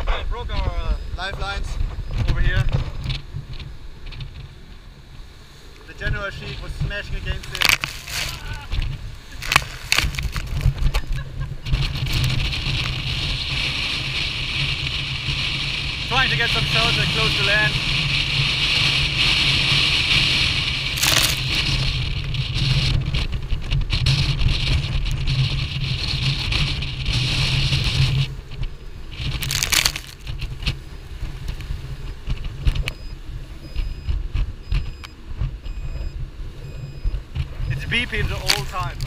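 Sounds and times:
wind buffeting microphone: 0.0 - 39.0
faint alarm beeps: 0.8 - 1.2, 32.8 - 37.9
water rushing along hull: 2.6 - 33.7.

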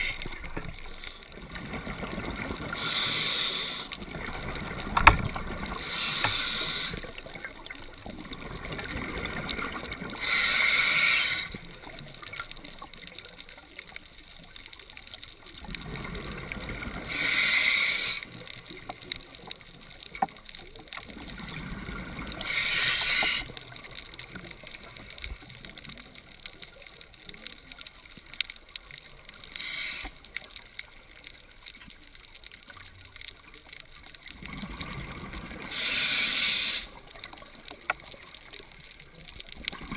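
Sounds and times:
regulator inhalation hiss: 0.0 - 1.3, 2.7 - 4.0, 5.8 - 7.2, 10.2 - 11.7, 17.0 - 18.5, 22.4 - 23.6, 29.4 - 30.3, 35.7 - 37.0
exhaled bubbles rushing underwater: 0.0 - 10.5, 15.4 - 17.6, 21.0 - 26.2, 34.0 - 39.9.

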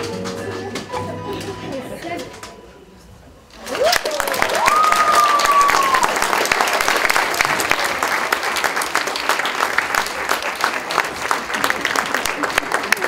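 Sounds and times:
audience applauding: 3.5 - 13.0.

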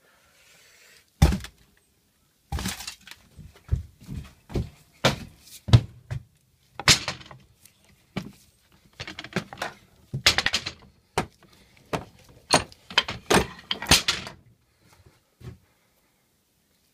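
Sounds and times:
hammers knocking and clinking: 6.8 - 7.5, 8.2 - 14.4.

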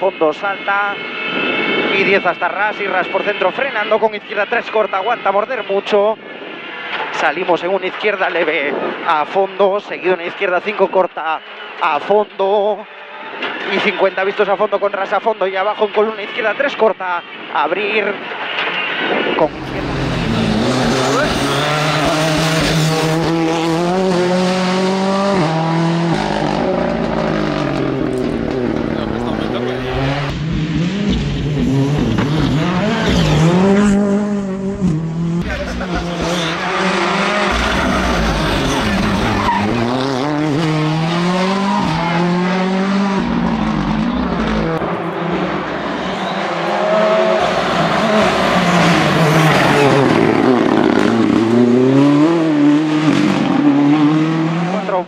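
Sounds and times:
rally car engine running hard: 19.5 - 45.3.

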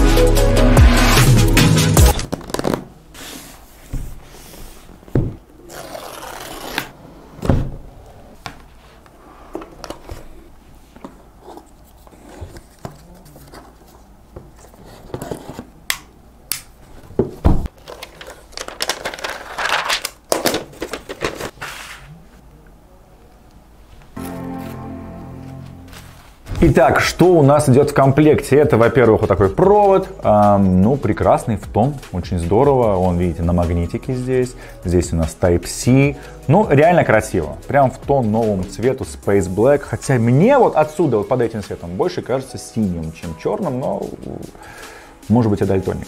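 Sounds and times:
intro music: 0.0 - 2.2, 24.2 - 27.5
paper wrap peeling and rustling: 17.7 - 22.0.

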